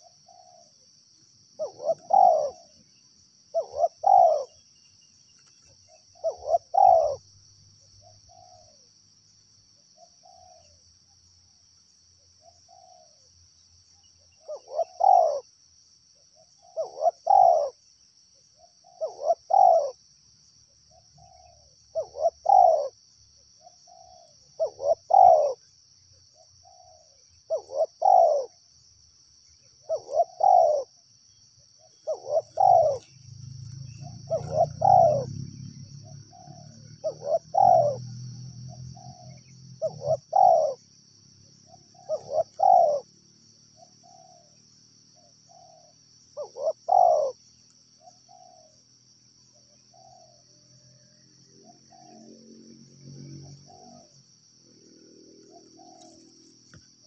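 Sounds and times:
doves cooing: 0:00.0 - 0:00.8, 0:01.5 - 0:02.9, 0:03.5 - 0:04.7, 0:05.5 - 0:08.9, 0:10.0 - 0:10.8, 0:12.4 - 0:13.2, 0:14.4 - 0:15.5, 0:16.4 - 0:17.8, 0:18.6 - 0:20.0, 0:20.9 - 0:23.0, 0:23.6 - 0:25.7, 0:26.3 - 0:28.6, 0:29.7 - 0:31.0, 0:31.8 - 0:43.1, 0:45.2 - 0:48.8, 0:49.9 - 0:57.0.

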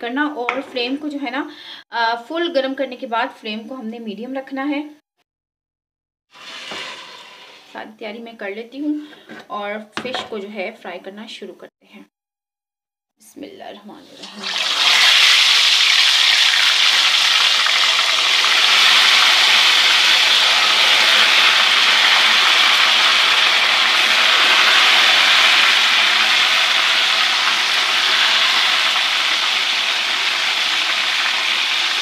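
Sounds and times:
fish sizzling in oil: 0:06.3 - 0:07.8, 0:14.4 - 0:32.0.

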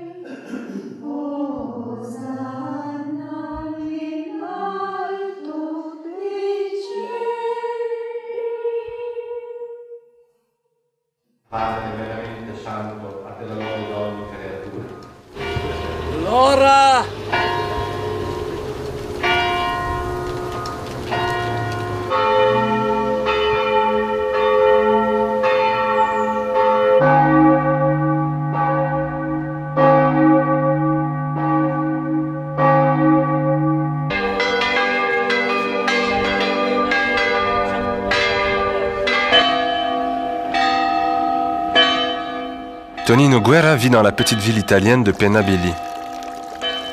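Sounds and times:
church bells ringing: 0:11.6 - 0:46.9
deep sustained bell hum: 0:15.4 - 0:20.6, 0:21.3 - 0:29.7.

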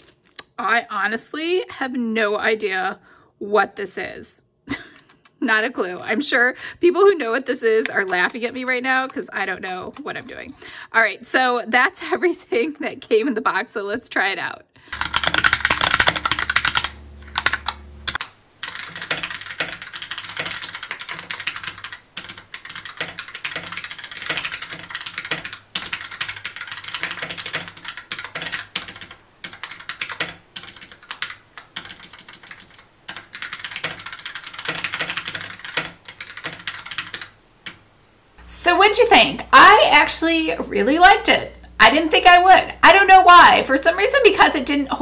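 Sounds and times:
mechanical keyboard key clicks: 0:15.0 - 0:18.2.

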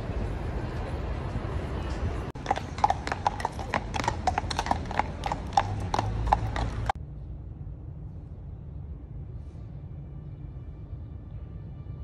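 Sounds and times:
low city rumble: 0:00.0 - 0:12.0
horse hooves on wet road: 0:02.4 - 0:07.0.

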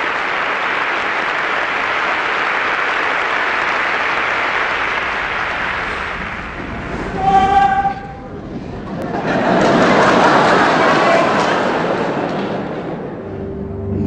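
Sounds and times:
audience applauding: 0:00.0 - 0:08.1, 0:08.8 - 0:13.3.

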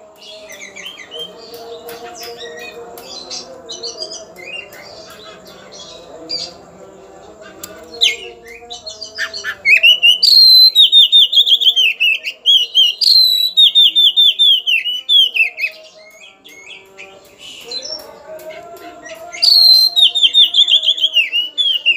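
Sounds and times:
bird chirps: 0:07.4 - 0:18.4, 0:19.0 - 0:21.9
bird singing loudly: 0:07.6 - 0:18.2, 0:19.0 - 0:21.9.

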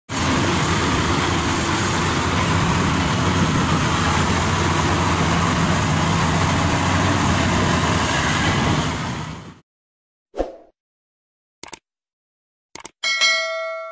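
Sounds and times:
harvester engine hum: 0:00.1 - 0:09.6.

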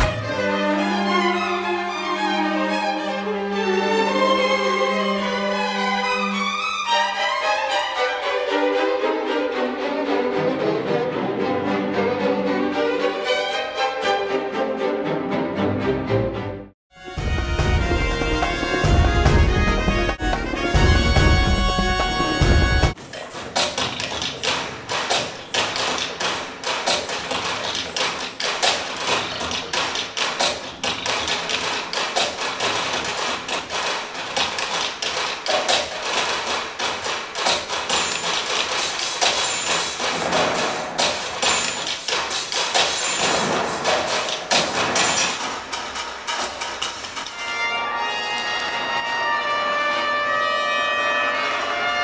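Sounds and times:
rapid irregular clicking and knocking: 0:19.2 - 0:47.4.

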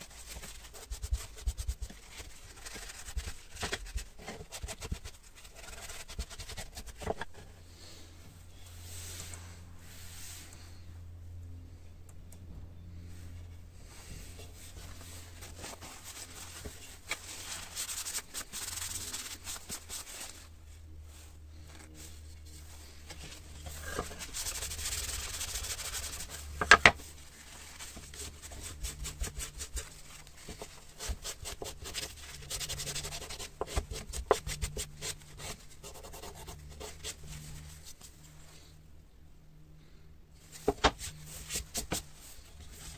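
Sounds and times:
cloth rag scrubbing wood: 0:22.7 - 0:37.9.

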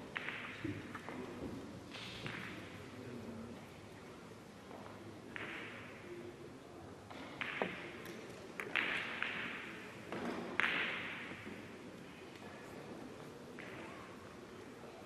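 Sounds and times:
billiard balls clicking and knocking: 0:00.1 - 0:01.2, 0:04.7 - 0:05.9, 0:07.1 - 0:11.7.

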